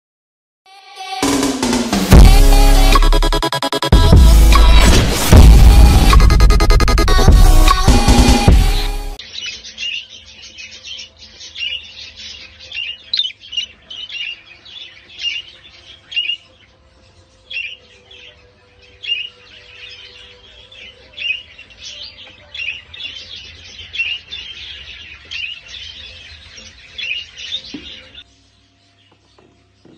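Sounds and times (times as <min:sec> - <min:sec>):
budgerigar chirping: 0:09.2 - 0:28.2.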